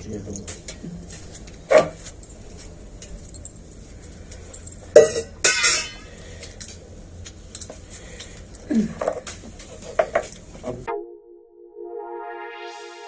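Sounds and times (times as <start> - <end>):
metal vessels clinking: 4.3 - 6.7.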